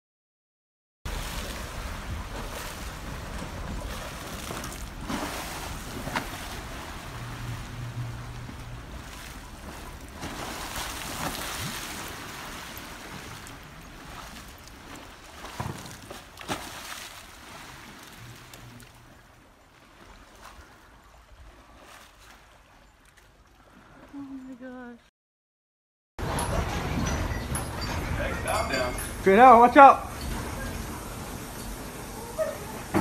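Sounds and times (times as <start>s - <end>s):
pool water sloshing: 1.1s - 25.0s, 26.2s - 33.0s
water splashes: 1.1s - 25.0s.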